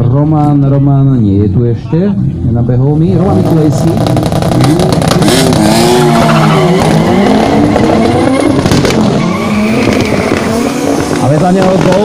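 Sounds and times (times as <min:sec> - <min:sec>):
car engines revving: 0:01.9 - 0:12.0
tyres squealing: 0:05.5 - 0:11.3.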